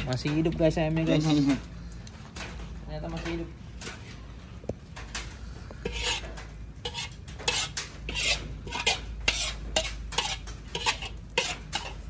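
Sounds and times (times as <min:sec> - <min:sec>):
metal turner scraping a wok: 0:05.8 - 0:12.0.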